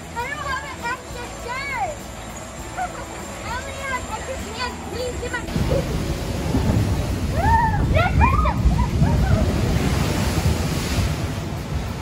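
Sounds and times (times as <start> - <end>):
rushing air and water: 0.0 - 12.0
wind buffeting microphone: 5.0 - 12.0
boat splashing into water: 5.1 - 12.0.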